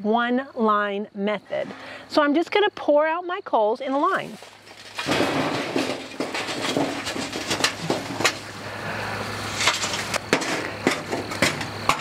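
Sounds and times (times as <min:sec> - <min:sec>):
charcoal tumbling onto metal tray: 0:04.2 - 0:08.6, 0:09.4 - 0:12.0.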